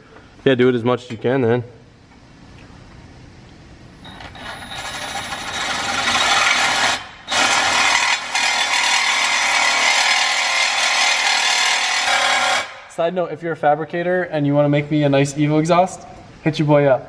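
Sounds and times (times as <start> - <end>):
reciprocating saw cutting pipe: 4.8 - 12.8.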